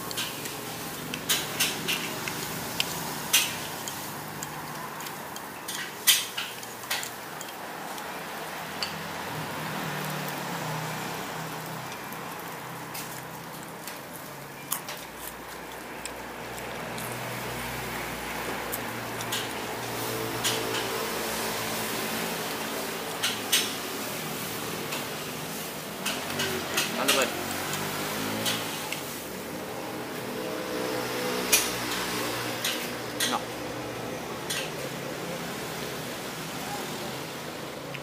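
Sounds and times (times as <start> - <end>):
utensils clinking against dishes: 0.0 - 7.6, 34.4 - 34.8.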